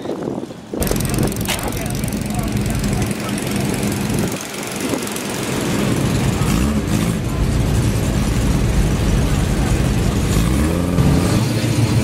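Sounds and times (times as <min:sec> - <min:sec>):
car engine rumbling: 0:00.6 - 0:12.0.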